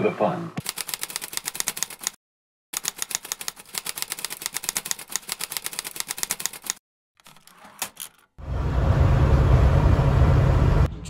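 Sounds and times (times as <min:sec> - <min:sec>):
typewriter key clacks: 0:00.6 - 0:02.2, 0:02.8 - 0:08.2.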